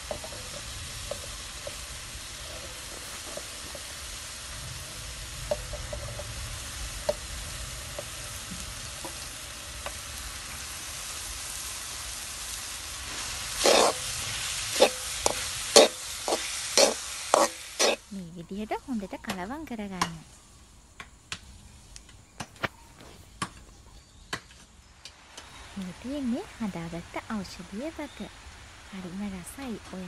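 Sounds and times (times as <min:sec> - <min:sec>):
spoon scraping and knocking pan: 0:00.0 - 0:04.0, 0:05.4 - 0:06.4, 0:13.1 - 0:14.0, 0:14.7 - 0:18.0
spices sizzling in oil: 0:00.0 - 0:30.0.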